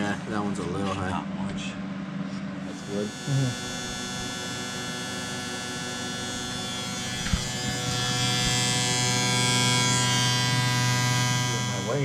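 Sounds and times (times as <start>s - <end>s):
electric buzz of pump: 2.6s - 12.0s.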